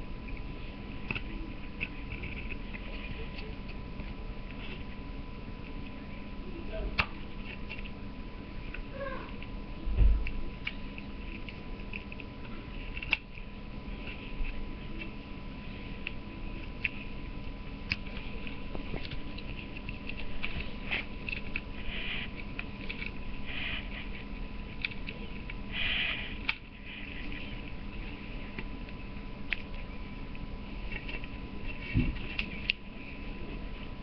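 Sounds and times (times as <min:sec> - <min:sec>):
steady low hum: 0:00.0 - 0:34.0
knife carving wood: 0:10.2 - 0:15.2, 0:15.8 - 0:33.2.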